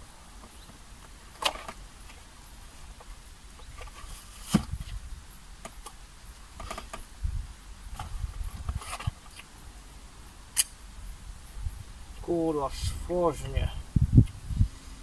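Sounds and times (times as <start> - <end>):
dull thump: 4.4 - 4.8.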